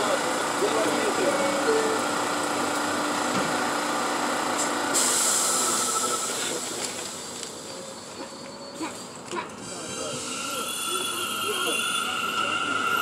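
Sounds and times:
subway train pulling away: 0.0s - 13.0s
sharp air hiss of brakes releasing: 4.9s - 7.7s.

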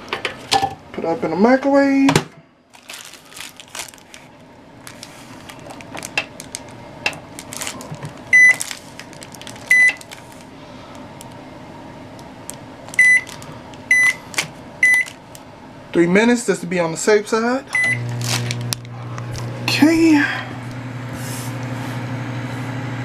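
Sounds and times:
keypad beeps: 8.3s - 8.6s, 9.7s - 10.0s, 13.0s - 13.3s, 13.9s - 14.2s, 14.8s - 15.1s, 17.8s - 18.0s.

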